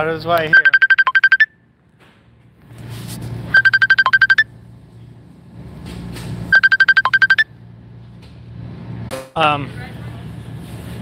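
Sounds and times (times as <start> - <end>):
phone ringtone high beeps: 0.5 - 1.6, 3.5 - 4.5, 6.5 - 7.5.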